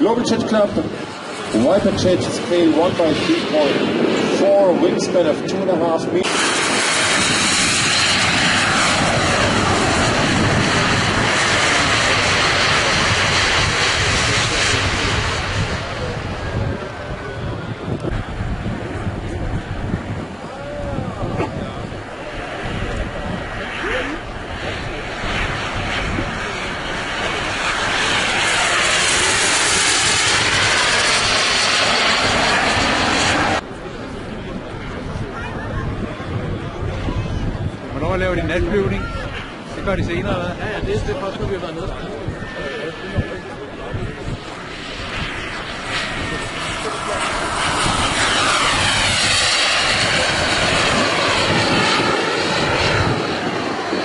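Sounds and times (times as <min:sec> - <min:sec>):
jet turbine engines rushing: 0:00.0 - 0:54.0.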